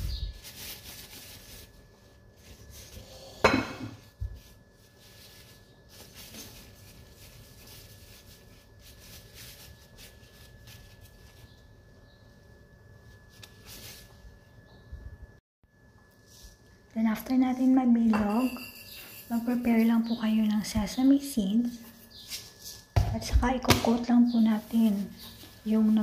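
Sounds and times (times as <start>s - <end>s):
rustling of plastic gloves: 0.0s - 3.4s, 4.0s - 15.1s, 19.2s - 23.4s, 24.0s - 26.0s
knock on metal mixing bowl: 23.0s - 24.0s.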